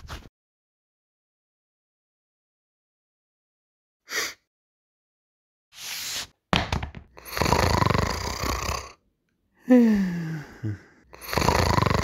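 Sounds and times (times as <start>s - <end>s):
short breath: 4.1s - 4.4s.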